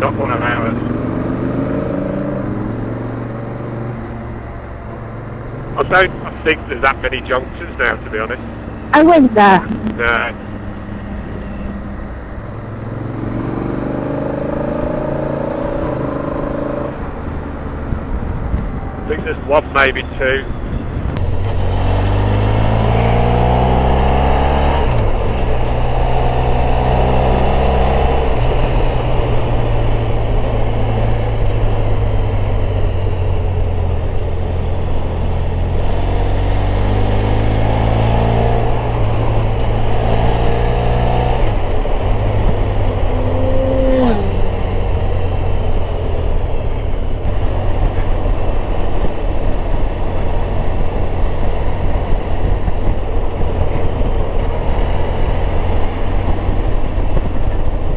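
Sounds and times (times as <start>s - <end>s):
motorcycle engine accelerating: 0.0s - 8.4s, 9.0s - 19.7s, 20.6s - 57.9s
vehicle passing: 9.0s - 57.9s
wind rush: 38.2s - 57.9s.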